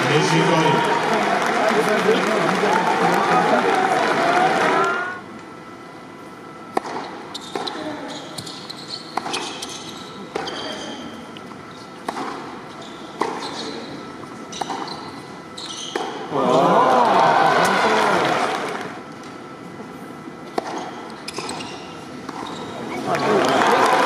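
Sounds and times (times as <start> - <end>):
tennis ball struck by racquets: 6.7 - 7.7
sneakers squeaking: 7.0 - 16.3, 20.6 - 23.0.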